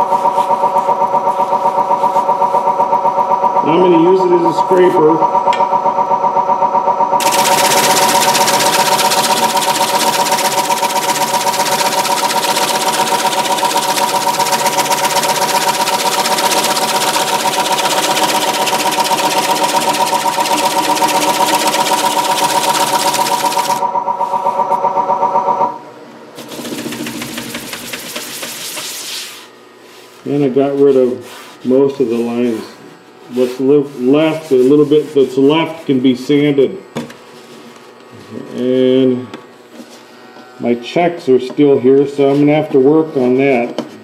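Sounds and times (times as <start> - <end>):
wood lathe motor whine: 0.0 - 29.2
scraper hissing on spinning wood: 7.2 - 23.8, 26.4 - 30.2
faint rubbing noise: 27.3 - 35.9.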